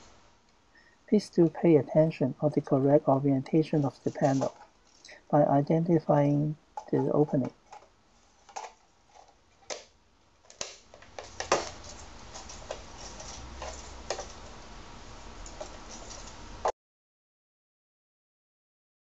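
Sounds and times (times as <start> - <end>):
steady hiss: 10.4 - 16.7.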